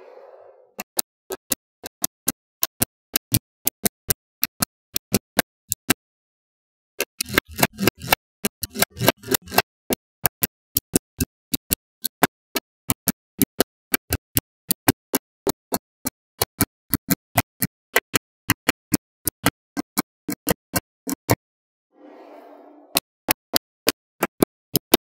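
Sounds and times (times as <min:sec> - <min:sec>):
magnetic balls clicking: 0:00.8 - 0:06.0, 0:07.0 - 0:21.4.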